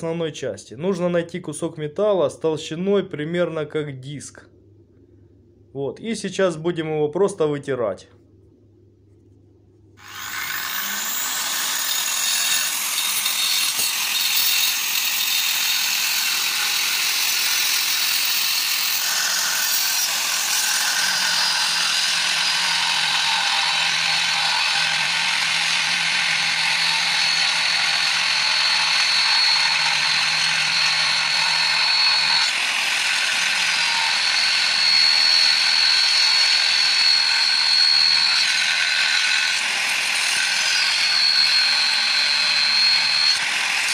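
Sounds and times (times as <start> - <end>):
angle grinder whine: 10.0 - 43.9.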